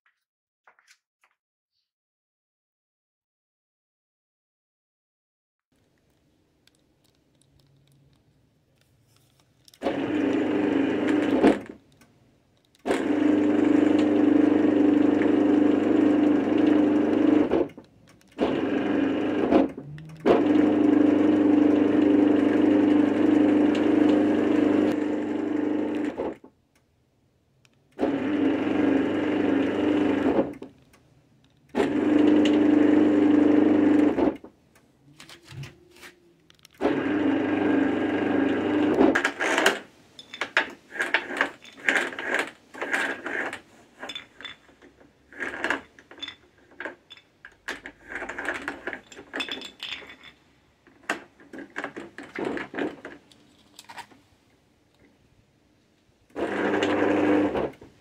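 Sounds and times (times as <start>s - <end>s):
garage door opener motor humming: 9.8s - 12.0s, 12.7s - 26.5s, 27.8s - 34.6s, 36.5s - 50.3s, 56.3s - 58.0s.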